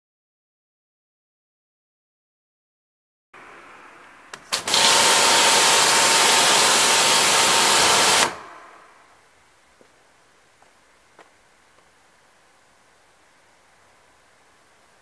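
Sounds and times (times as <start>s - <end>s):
pressure washer spraying: 4.4s - 8.8s.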